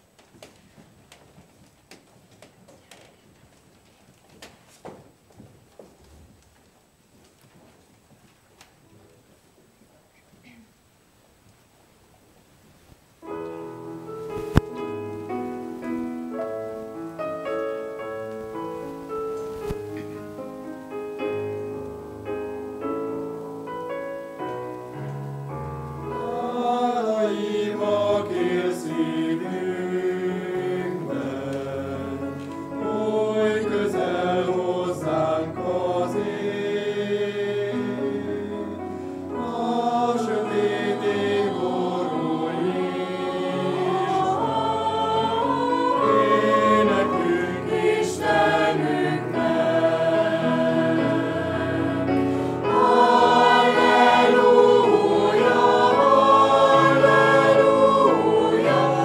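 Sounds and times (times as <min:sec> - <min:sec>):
digital piano playing: 0:13.2 - 0:36.6, 0:37.8 - 0:59.0
mixed choir singing a hymn: 0:26.0 - 0:59.0.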